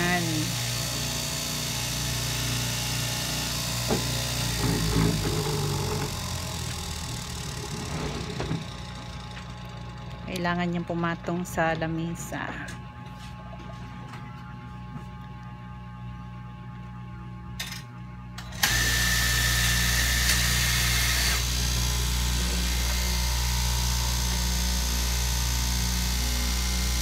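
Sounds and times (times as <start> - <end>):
cloth cutting machine running: 0.0 - 10.5, 18.4 - 27.0.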